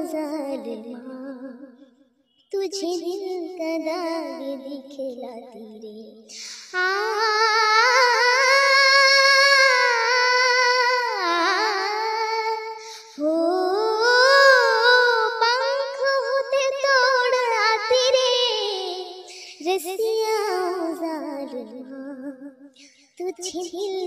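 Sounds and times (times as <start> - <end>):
girl singing unaccompanied: 0.0 - 1.8, 2.4 - 22.5, 23.1 - 24.0
girl breathing: 6.3 - 6.8, 12.8 - 13.2, 19.3 - 19.6.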